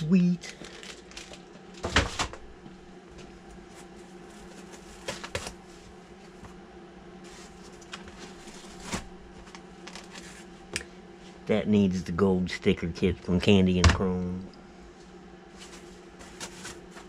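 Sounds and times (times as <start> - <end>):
steady low hum: 0.0 - 17.0
box and foam handling rustle: 3.2 - 6.6, 7.2 - 10.6, 15.5 - 17.0.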